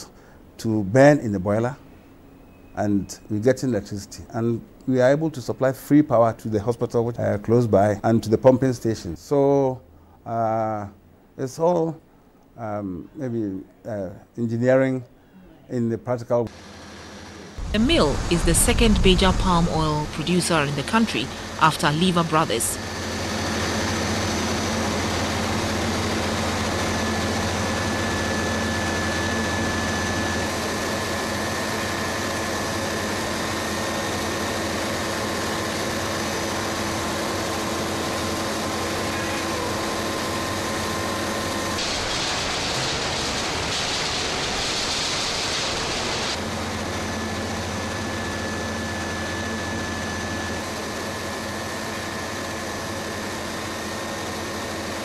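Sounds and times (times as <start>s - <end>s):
mill machinery droning: 16.5s - 55.0s
loud hiss: 41.8s - 46.4s.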